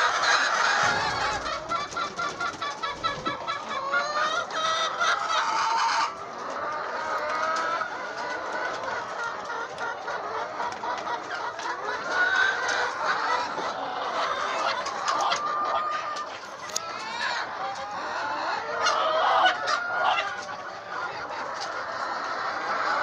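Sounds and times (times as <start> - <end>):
hens clucking: 0.0 - 23.0.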